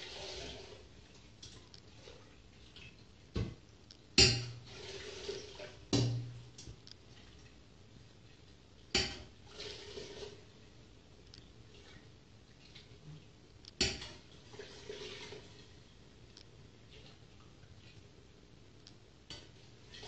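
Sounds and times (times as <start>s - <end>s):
metal ladle knocking on pot: 4.2s - 4.6s.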